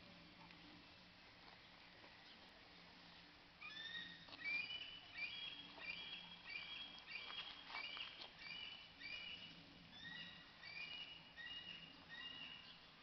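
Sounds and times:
bird chirping: 3.6 - 13.0.

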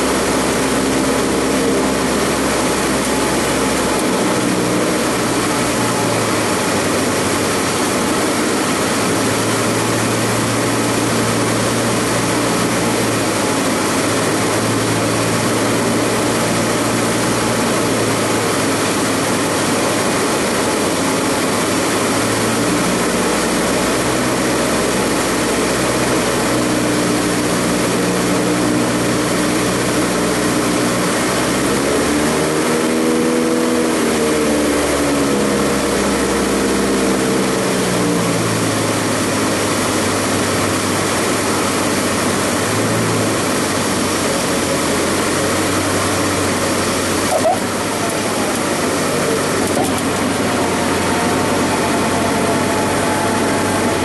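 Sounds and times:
light aircraft engine and propeller: 0.0 - 54.0
rushing air noise: 41.0 - 54.0
humming tone rising and falling: 46.4 - 54.0.

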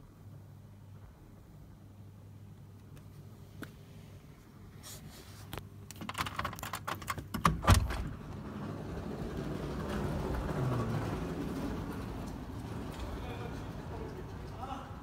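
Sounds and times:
glass door latch clicks: 5.9 - 8.2
door thump: 7.4 - 8.2.

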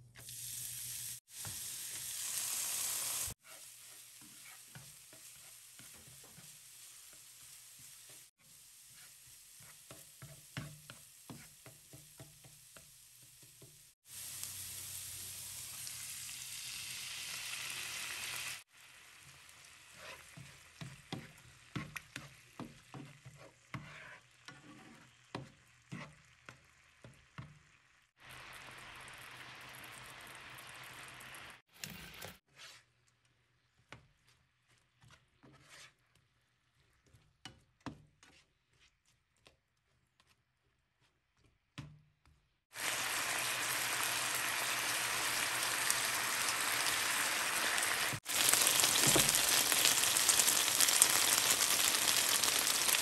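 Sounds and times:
garlic sizzling in oil: 0.1 - 31.6, 42.7 - 53.0
spatula scraping a pan: 3.4 - 13.8, 19.2 - 27.6, 32.4 - 33.0, 34.0 - 39.4.

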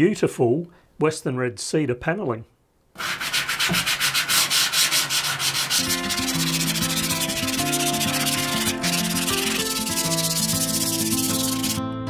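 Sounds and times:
hand sanding wood: 3.0 - 11.8
acoustic guitar music: 5.8 - 12.0.

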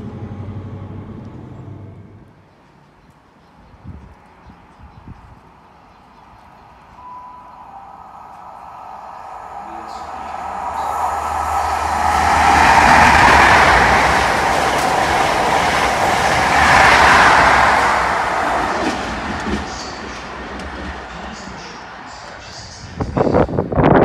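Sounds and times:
low diesel hum: 0.0 - 2.4
train wheels and rail noise: 0.0 - 24.0.

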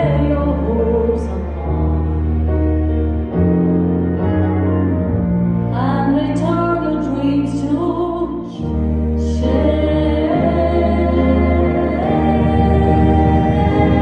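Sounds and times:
piano and bass chords: 0.0 - 14.0
woman singing with vibrato: 5.8 - 14.0.

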